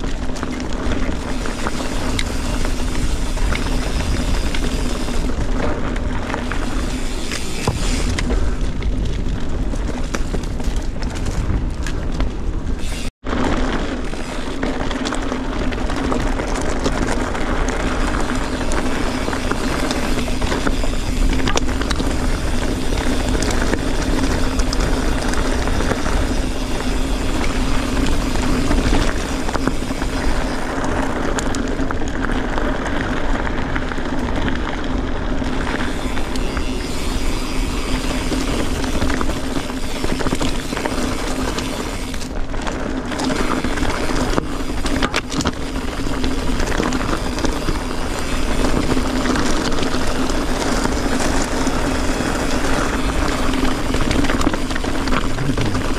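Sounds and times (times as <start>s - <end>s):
bike rattling over stones: 0.0s - 55.9s
wind on microphone: 0.0s - 55.9s
tyre roar: 55.1s - 55.9s.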